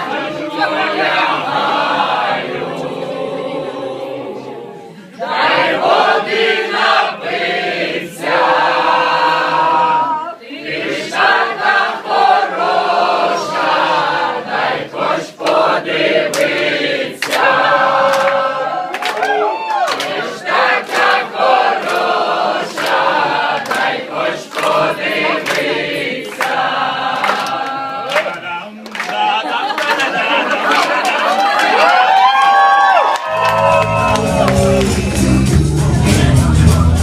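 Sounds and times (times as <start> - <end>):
choir singing unaccompanied: 0.0 - 31.8.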